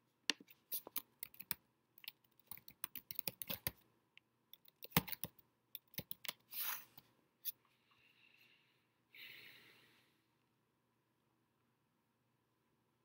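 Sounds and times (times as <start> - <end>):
keyboard typing: 0.5 - 3.8, 4.5 - 6.5.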